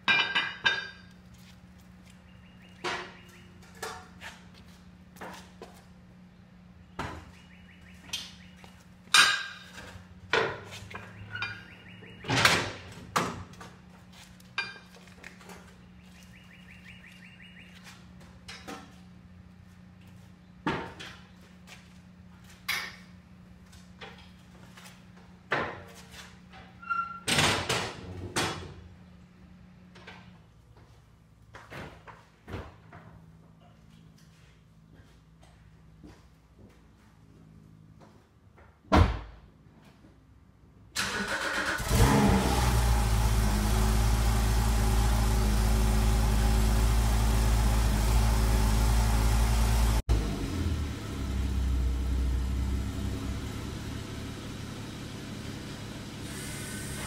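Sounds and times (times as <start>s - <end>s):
metal ramps clanking on concrete: 0.0s - 1.1s, 9.1s - 11.7s, 26.5s - 28.7s.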